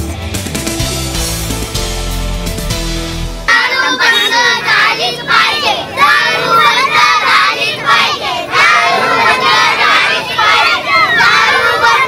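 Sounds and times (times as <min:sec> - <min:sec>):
children chanting slogans: 0:03.5 - 0:12.0.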